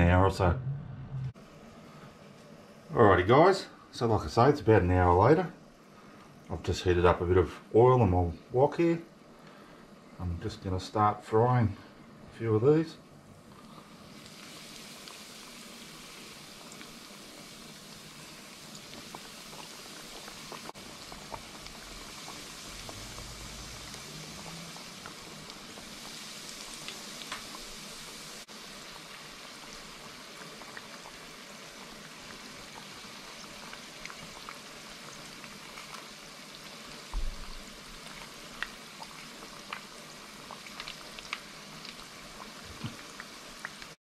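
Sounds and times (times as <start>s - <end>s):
food deep-frying in oil: 12.4s - 44.0s
oil crackling and popping: 13.5s - 44.0s.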